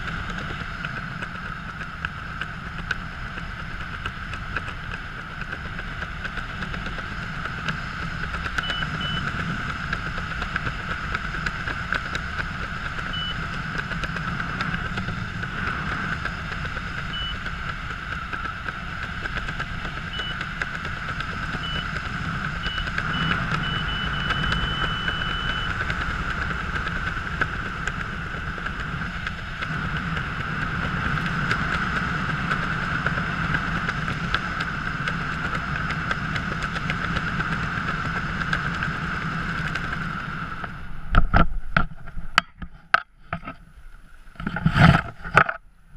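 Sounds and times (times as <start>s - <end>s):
constant hum: 0.0s - 45.9s
wind rushing over camera: 0.0s - 45.9s
short high beeps: 8.6s - 9.3s, 22.6s - 25.8s.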